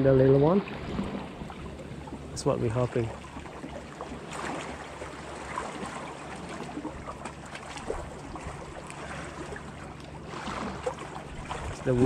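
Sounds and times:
waves splashing against rocks: 10.2s - 12.0s.

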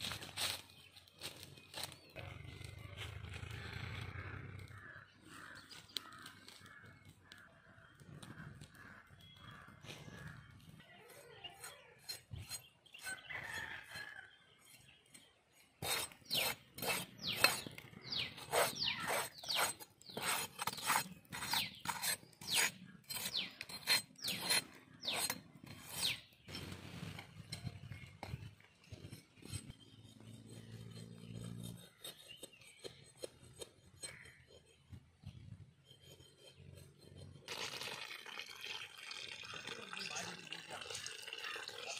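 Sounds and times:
knife scraping charred hide: 11.1s - 37.6s.

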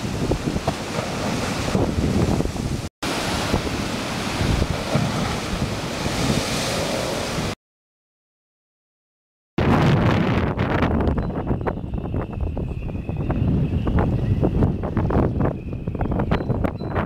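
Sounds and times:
surf breaking against sea wall: 0.0s - 7.6s
wind buffeting microphone: 0.0s - 7.6s, 9.6s - 17.0s.

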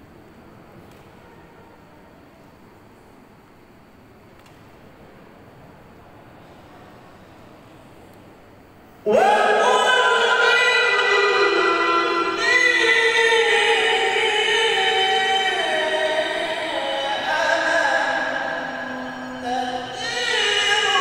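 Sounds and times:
man chanting melodically: 9.1s - 21.0s.

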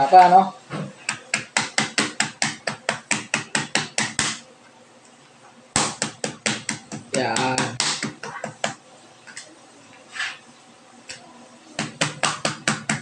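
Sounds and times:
knife pounding on cutting board: 1.4s - 4.4s.

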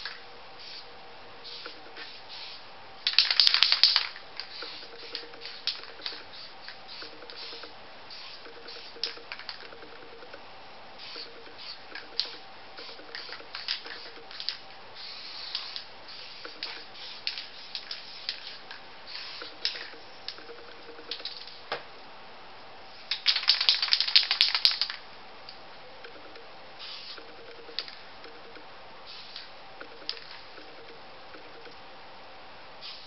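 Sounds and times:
spray can hissing: 0.6s - 9.6s, 11.0s - 20.4s, 26.8s - 27.9s, 29.0s - 30.5s, 32.8s - 33.0s
spray can rattling: 1.5s - 10.0s, 11.0s - 21.6s, 23.1s - 25.0s, 26.8s - 28.0s, 29.1s - 30.8s.

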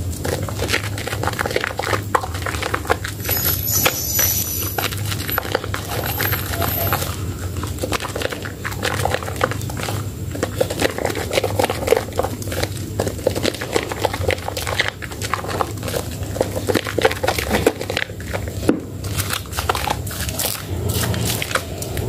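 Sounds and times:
hands squelching soap lather: 0.0s - 22.0s.

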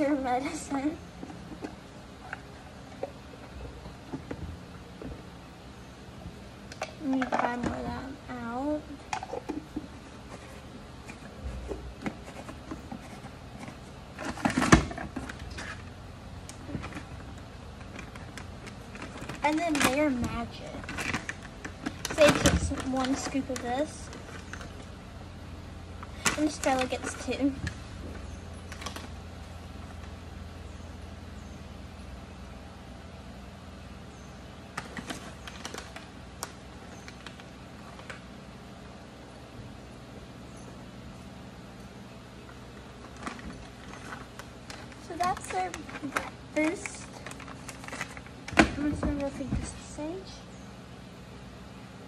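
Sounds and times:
steady low hum: 0.0s - 52.0s
plastic clatter: 9.1s - 15.8s, 16.5s - 24.8s, 34.8s - 38.2s, 43.0s - 49.8s
plastic tubs clicking and knocking: 9.1s - 15.8s, 16.5s - 24.8s, 43.1s - 49.7s
paper bag handling: 16.6s - 24.8s, 43.0s - 49.8s.

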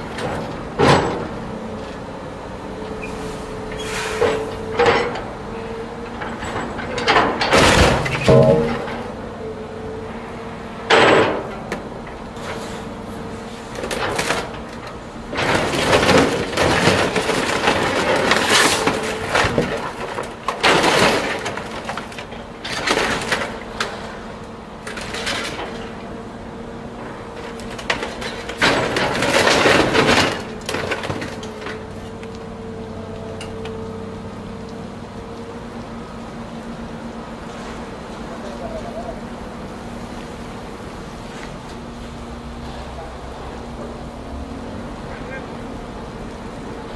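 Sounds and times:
metal and glass crunching: 6.2s - 9.2s, 15.3s - 23.6s, 27.7s - 31.8s.

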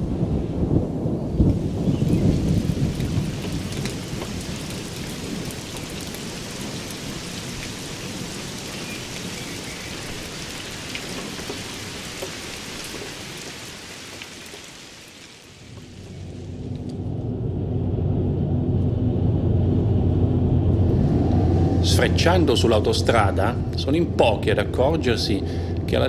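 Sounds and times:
thunder rumbling: 0.0s - 14.1s, 15.6s - 26.0s
steady rain falling: 0.0s - 17.5s, 20.8s - 26.0s
raindrop ticks: 1.4s - 17.0s.

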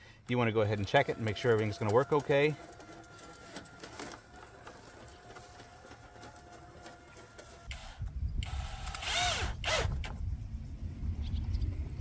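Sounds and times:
cordless drill driving screw: 6.8s - 10.2s
wind rumbling on microphone: 7.8s - 12.0s.

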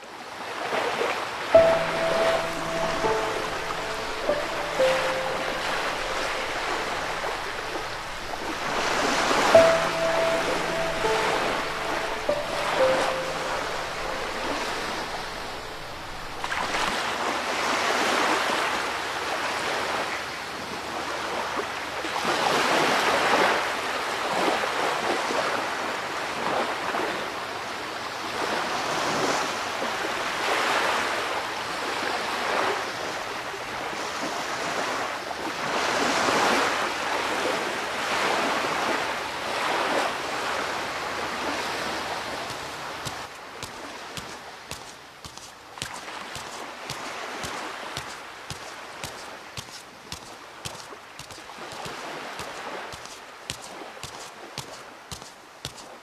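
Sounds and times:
surf breaking on shore: 1.6s - 20.0s, 35.6s - 55.0s.

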